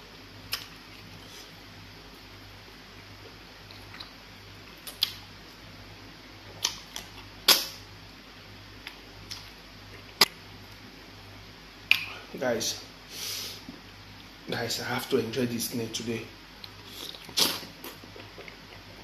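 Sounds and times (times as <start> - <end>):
faint low hum: 0.0 - 19.0
wet mouth smacks chewing: 4.8 - 5.2.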